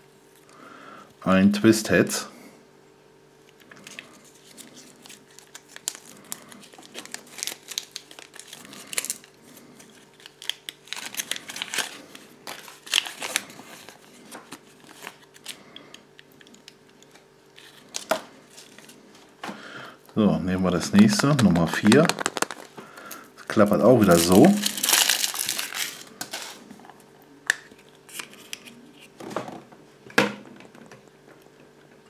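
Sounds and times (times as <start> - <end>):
paper leaflet crinkling: 3.7 - 15.7, 20.6 - 26.6.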